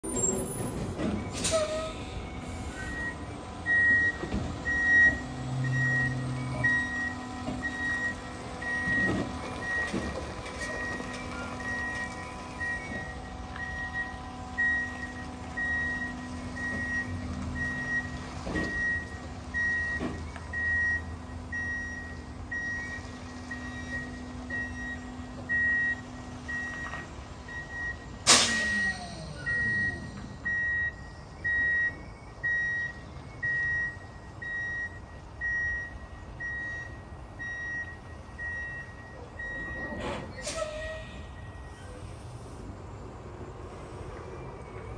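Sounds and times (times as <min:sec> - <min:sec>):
truck backup alarm beeping: 0:00.0 - 0:44.9.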